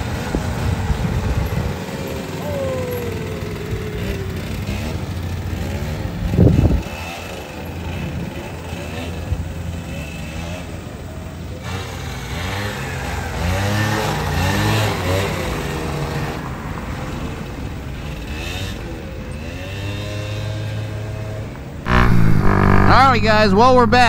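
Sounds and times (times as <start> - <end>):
small single-cylinder engine revving: 0.0 - 16.4.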